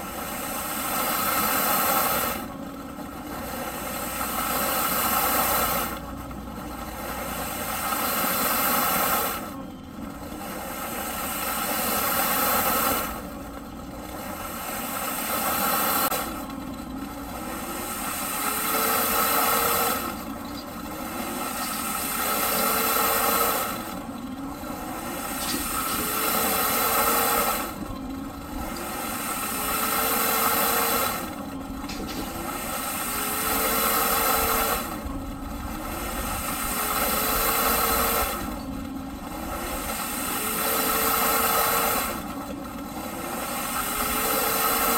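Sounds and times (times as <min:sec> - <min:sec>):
vacuum cleaner motor: 0:00.0 - 0:44.9.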